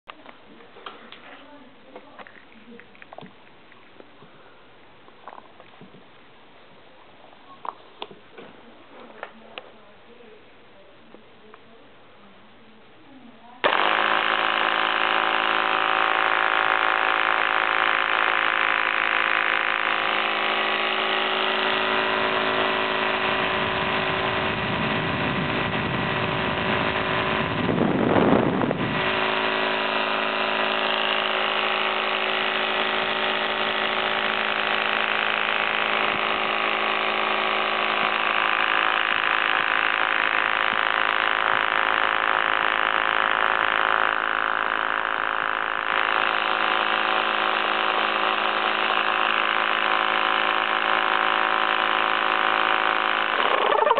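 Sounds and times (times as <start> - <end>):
air compressor buzzing whine: 13.6 - 53.9.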